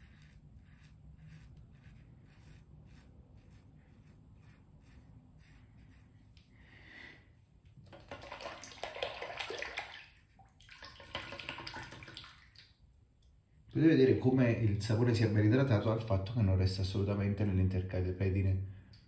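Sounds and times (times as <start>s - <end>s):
tap water splashing over razor: 7.8s - 12.7s.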